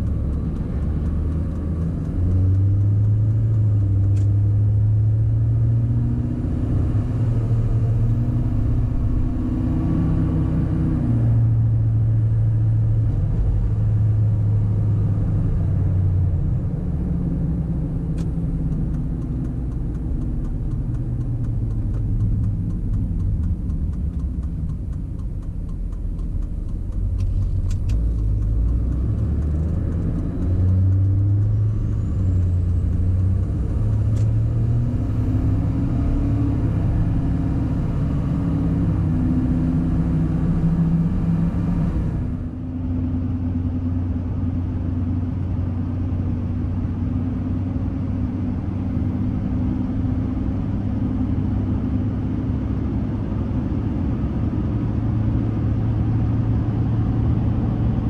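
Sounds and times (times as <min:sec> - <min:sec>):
road noise: 0:00.0 - 0:58.0
truck engine drone: 0:00.0 - 0:58.0.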